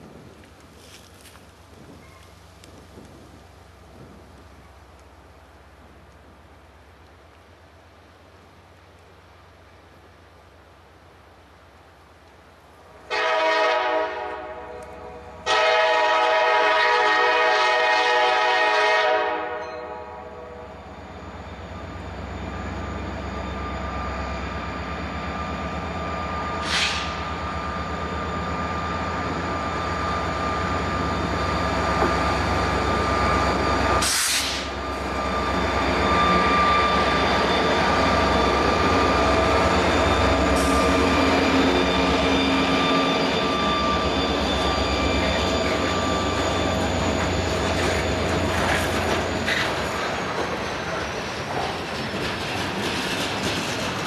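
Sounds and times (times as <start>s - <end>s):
diesel locomotive rumble: 0.0s - 54.0s
train horn blasts: 13.1s - 20.8s
steady high whine: 20.1s - 51.1s.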